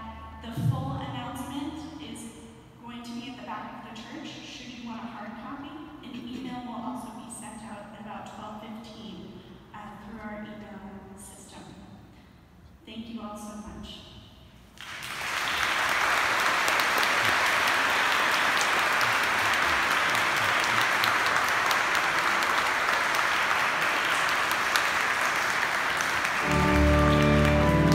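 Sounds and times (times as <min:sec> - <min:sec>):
congregation applauding: 0:14.8 - 0:27.9.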